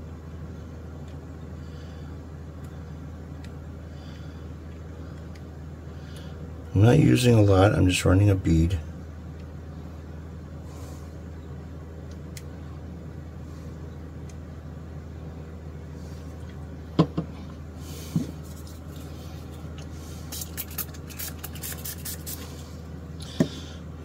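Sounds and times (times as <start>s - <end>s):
low room hum: 0.0s - 24.0s
plastic bottle knocking on workbench: 17.0s - 17.3s.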